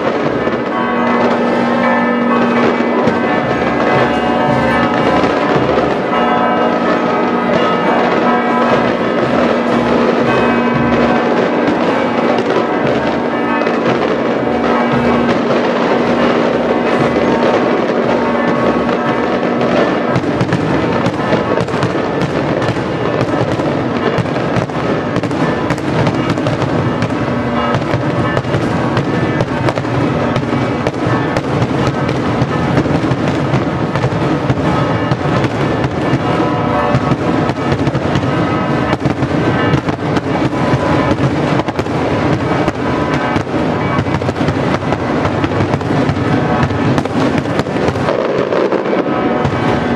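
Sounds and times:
church bells ringing: 0.0s - 49.9s
fireworks bangs and crackles: 0.0s - 49.9s.

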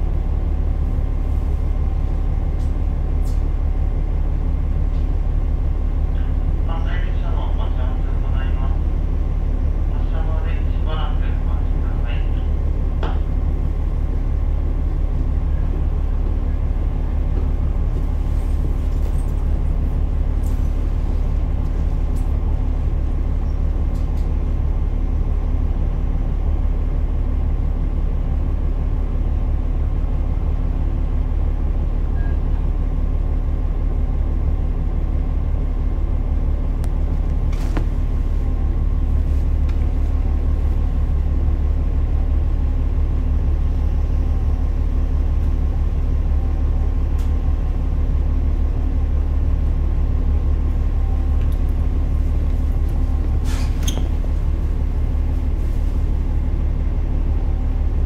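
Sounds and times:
diesel engine rumble: 0.0s - 58.0s.

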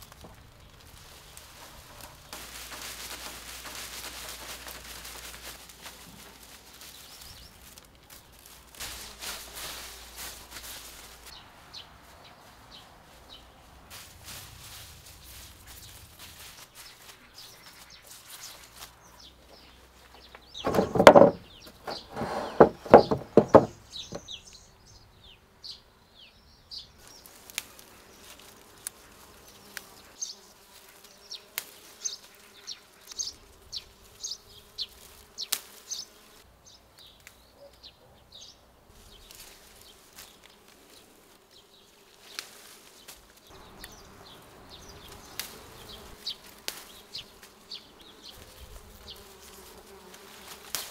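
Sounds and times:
bee buzzing: 0.0s - 26.4s, 27.0s - 36.8s, 38.8s - 50.9s
small birds chirping: 0.0s - 50.9s.

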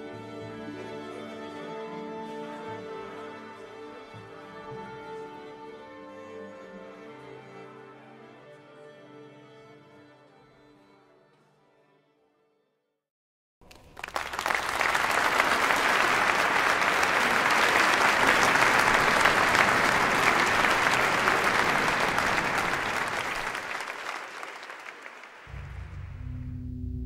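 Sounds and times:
audience applauding: 13.6s - 25.8s
wind ensemble low held note: 25.5s - 27.0s.

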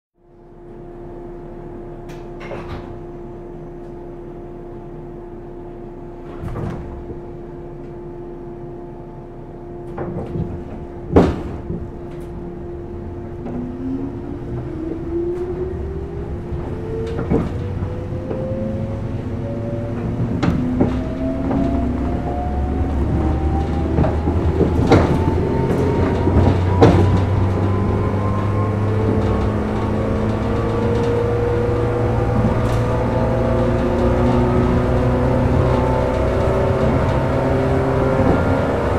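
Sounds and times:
train car hum: 0.2s - 38.9s
wheel knocks over rail joints: 9.9s - 12.5s, 20.0s - 38.9s.

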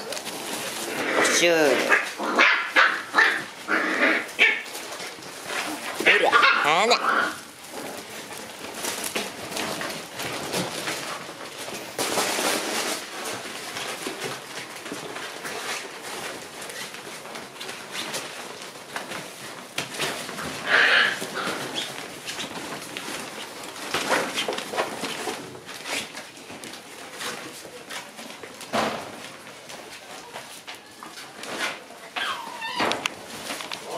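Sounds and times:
paws scrabbling on floor: 0.0s - 33.9s
rustling: 0.0s - 33.9s
puppy squeal: 32.2s - 33.0s.

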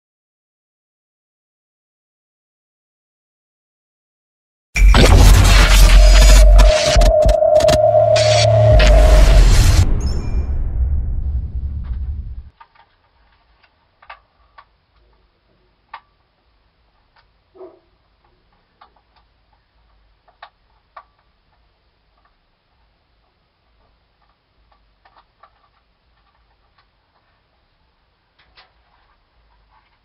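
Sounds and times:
deep rumble: 4.8s - 12.5s
dense burst of noise: 4.8s - 12.5s
steady tone: 4.8s - 12.5s.

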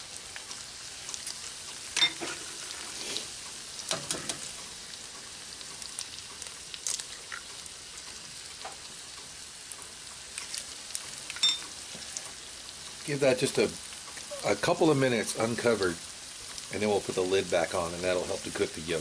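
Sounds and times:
food sizzling in a skillet: 0.0s - 19.0s.

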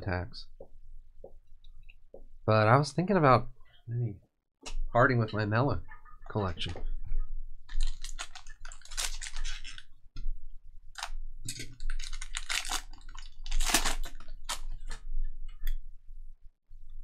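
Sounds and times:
foil wrapper crinkling and tearing: 7.7s - 9.9s, 11.8s - 14.9s.

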